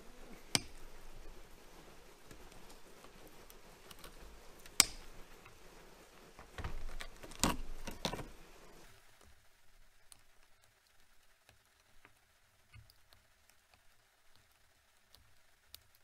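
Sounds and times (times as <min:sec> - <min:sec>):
wires rustling and scraping: 0:00.0 - 0:09.4
wire cutters snipping: 0:04.7 - 0:05.1.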